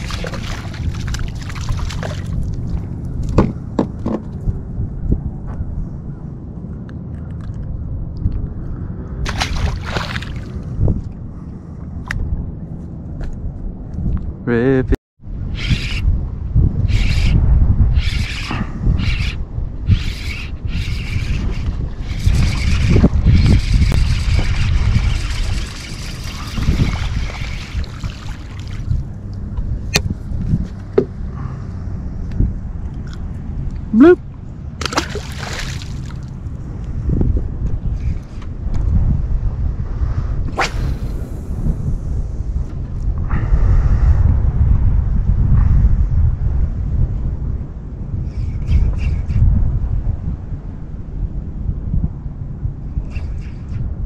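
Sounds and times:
fish splashing into water: 0.0 - 2.4, 9.3 - 10.5, 34.8 - 36.3
low rumble of wind and water: 0.0 - 54.0.

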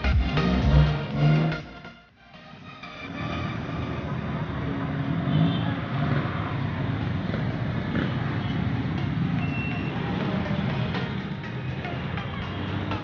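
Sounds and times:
traffic din: 0.0 - 13.0.

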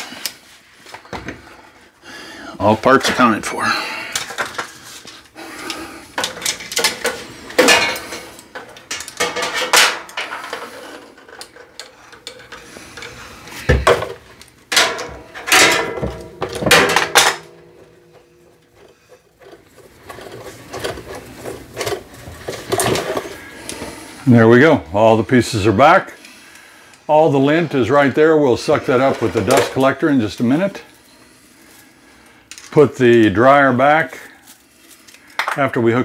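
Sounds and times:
rods knocking and clattering: 6.2 - 12.6, 13.6 - 23.4.

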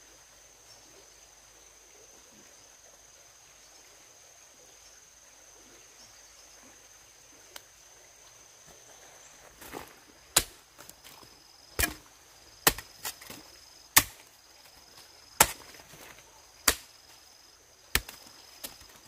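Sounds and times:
wood chopping strikes: 10.3 - 11.2, 11.8 - 14.3, 15.4 - 17.1, 17.9 - 19.0.

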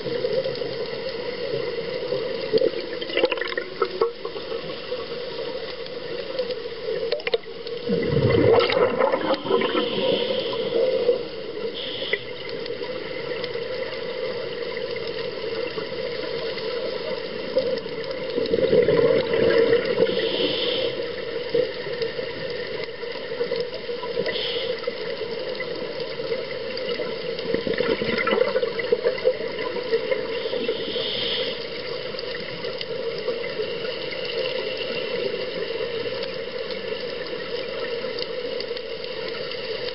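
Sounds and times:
steady underwater hiss: 0.0 - 39.9
bubbling exhaled air underwater: 2.4 - 4.9, 7.0 - 15.0, 15.6 - 23.2, 26.2 - 37.0.

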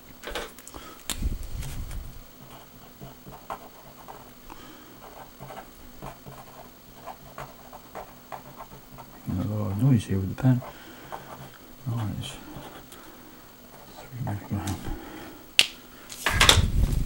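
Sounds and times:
pen scratching on paper: 2.4 - 4.4, 5.0 - 12.9, 13.7 - 14.8.

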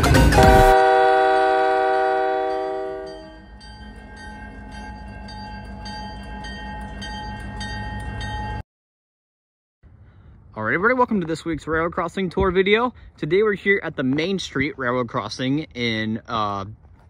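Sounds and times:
train rumbling: 0.0 - 8.6
locomotive air horn: 0.2 - 3.4
bell ringing: 2.4 - 8.6.

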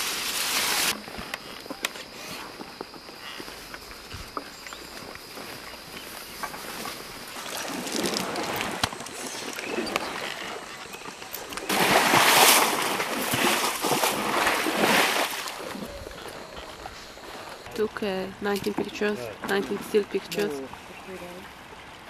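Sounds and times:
elephant splashing in muddy water: 6.7 - 16.8.

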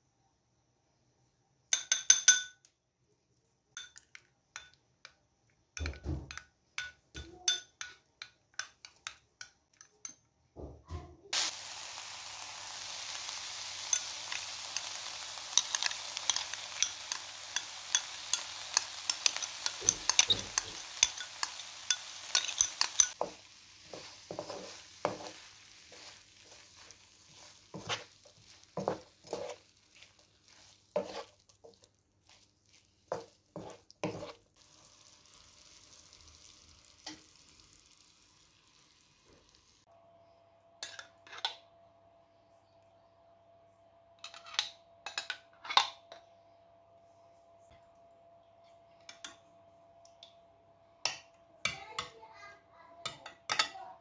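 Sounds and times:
food sizzling in a frying pan: 11.3 - 39.9
utensils and dishes clinking: 15.5 - 23.3.

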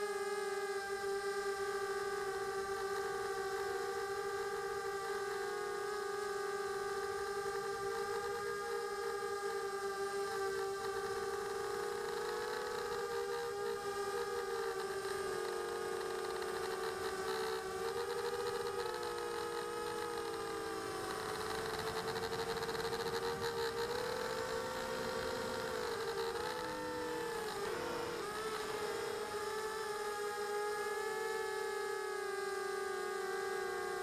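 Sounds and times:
drone propellers whining: 6.2 - 31.4.

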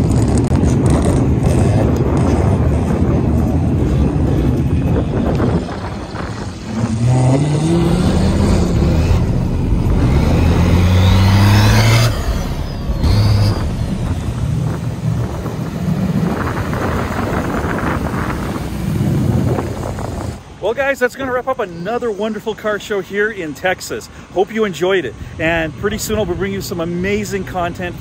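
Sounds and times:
diesel engine revving: 0.0 - 20.5
vehicle driving past: 3.8 - 19.0.

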